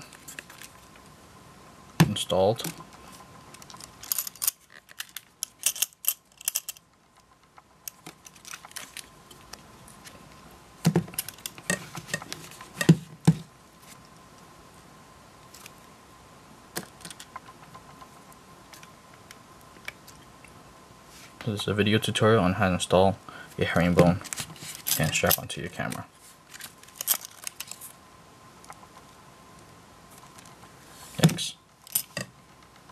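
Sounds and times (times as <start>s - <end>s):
camera strap fittings rattling: 3.6s - 6.8s, 26.5s - 27.8s.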